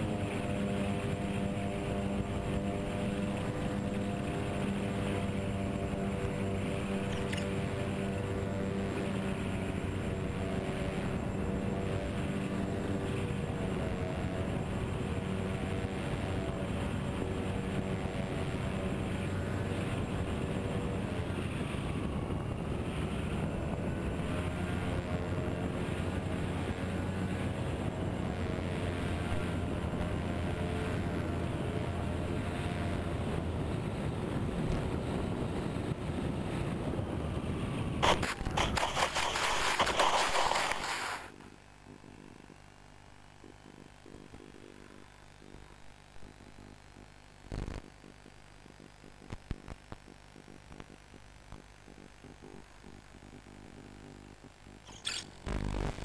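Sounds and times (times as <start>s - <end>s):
electric motors and propellers droning: 0.0s - 56.0s
plane impact scraping in snow: 38.0s - 41.3s.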